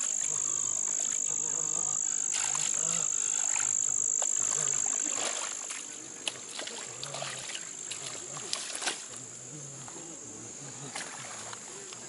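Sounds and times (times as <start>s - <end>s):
high-pitched insect drone: 0.0s - 5.6s
sloshing in muddy water: 0.0s - 12.0s.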